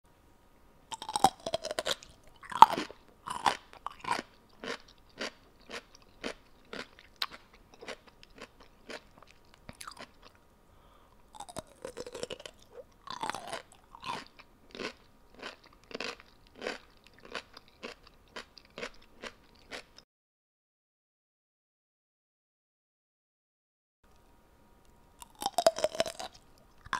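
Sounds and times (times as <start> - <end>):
person chewing crunchy food: 0.9 - 10.5, 11.2 - 20.0, 25.2 - 26.9.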